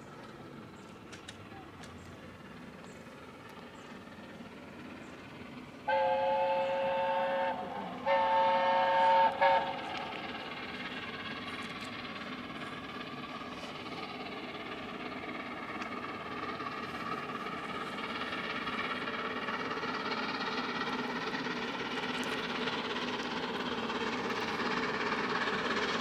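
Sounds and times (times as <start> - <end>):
steam train running: 0.0 - 26.0
steam locomotive whistle: 5.8 - 10.2.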